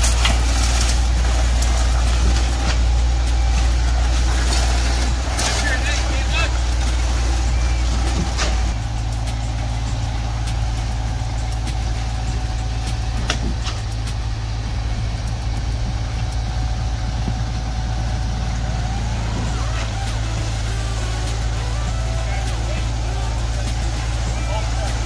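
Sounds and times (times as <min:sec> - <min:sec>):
diesel engine running: 0:00.0 - 0:25.0
scattered clicks and knocks: 0:08.1 - 0:16.6.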